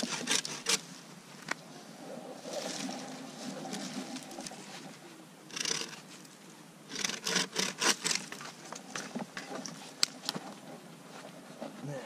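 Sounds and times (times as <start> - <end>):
bow saw cutting branch: 0.0 - 0.9, 5.5 - 6.2, 6.9 - 8.5.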